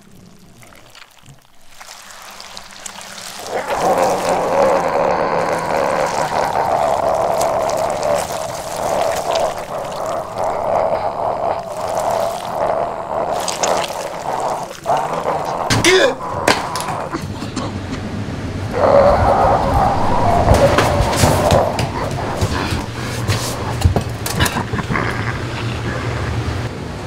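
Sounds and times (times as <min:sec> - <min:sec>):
water pouring into container: 0:00.0 - 0:17.2.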